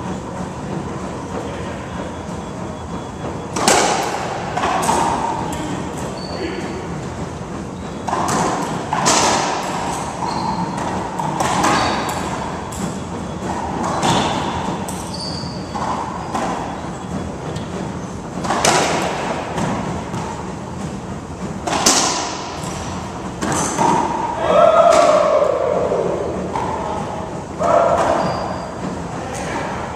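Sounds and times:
racquetball hits echoing: 0:03.5 - 0:05.8, 0:08.0 - 0:16.8, 0:18.4 - 0:20.4, 0:21.6 - 0:28.7.

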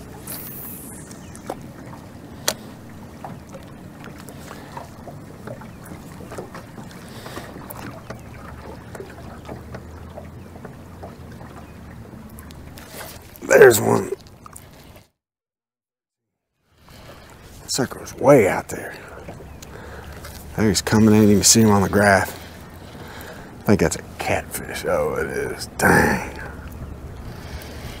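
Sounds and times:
low hum: 0:00.0 - 0:04.1
water noise: 0:00.0 - 0:15.1, 0:16.8 - 0:28.0
wind: 0:00.0 - 0:15.2, 0:16.4 - 0:28.0.

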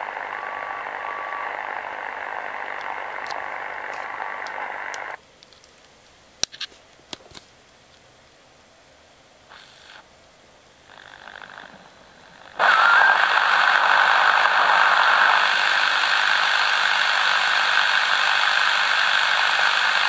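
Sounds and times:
shortwave static hiss: 0:00.0 - 0:20.0
radio control clicks and knocks: 0:02.6 - 0:05.8.

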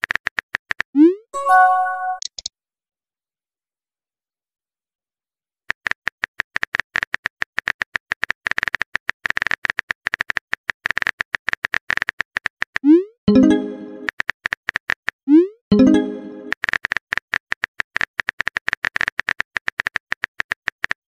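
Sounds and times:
keyboard typing clicks: 0:01.4 - 0:02.5.

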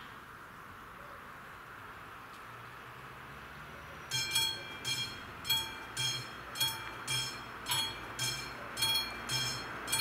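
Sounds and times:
level crossing warning bell ringing: 0:04.1 - 0:10.0.

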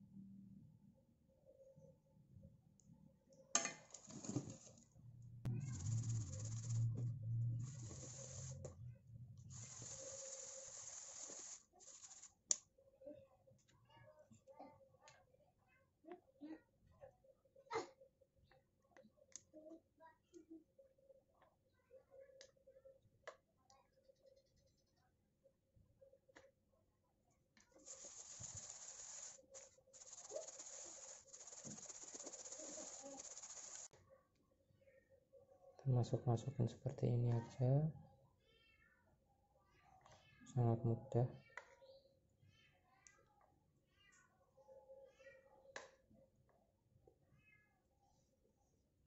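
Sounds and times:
low hum: 0:05.0 - 0:10.0
flour swishing in metal pot: 0:05.5 - 0:08.8, 0:09.4 - 0:12.5, 0:27.8 - 0:34.0.

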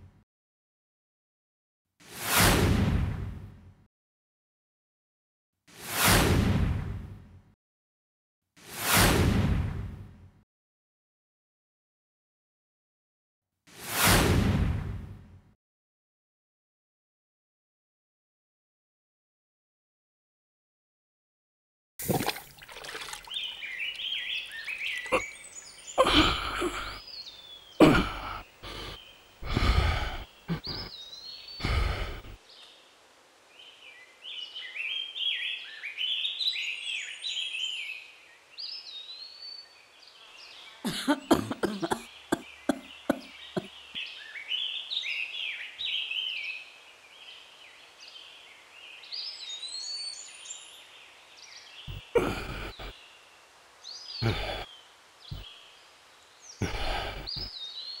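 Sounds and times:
birds chirping: 0:22.1 - 0:32.8, 0:33.6 - 0:58.0.

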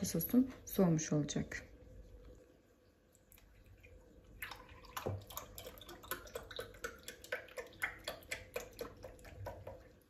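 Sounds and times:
milk glugging into glass: 0:03.4 - 0:10.0.

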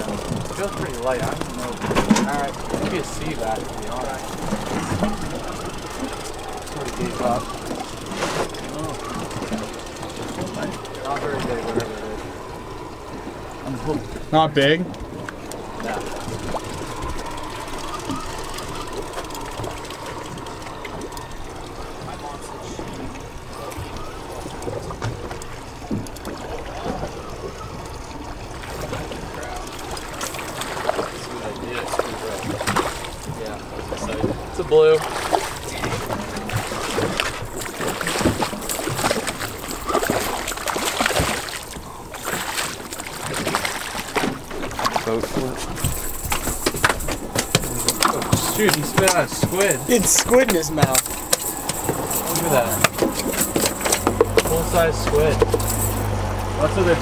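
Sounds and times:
outboard motor idling: 0:00.0 - 0:57.0
water noise: 0:00.0 - 0:57.0
wind: 0:00.0 - 0:57.0
fish splashing at surface: 0:15.2 - 0:33.4, 0:34.0 - 0:56.6.

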